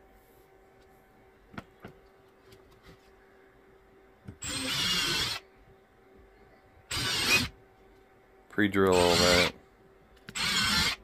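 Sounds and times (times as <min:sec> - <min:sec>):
impact driver drilling into wood: 0:04.4 - 0:05.4, 0:06.9 - 0:07.5, 0:10.3 - 0:11.0.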